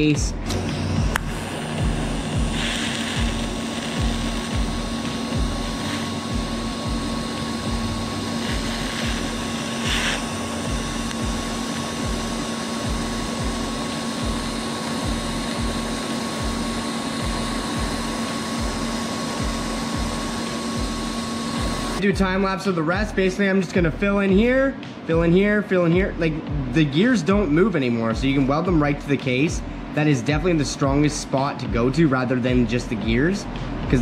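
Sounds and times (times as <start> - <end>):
low regular throb: 0.0 - 34.0
constant hum: 0.1 - 22.1
welding arc hissing: 0.5 - 22.0.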